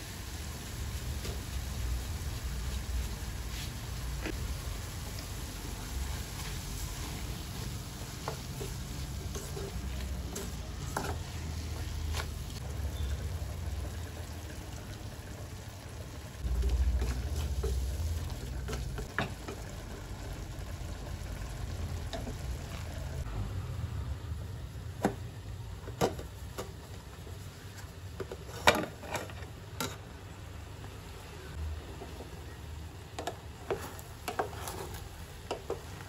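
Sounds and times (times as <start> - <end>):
onions sizzling in pot: 0.0 - 29.2, 30.5 - 36.0
wooden spoon stirring: 6.2 - 12.7, 16.4 - 20.6, 33.2 - 36.0.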